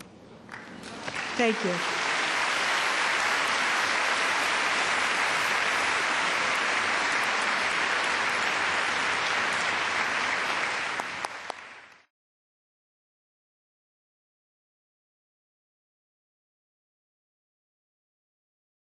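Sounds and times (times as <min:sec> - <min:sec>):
audience applauding: 0:00.5 - 0:12.1.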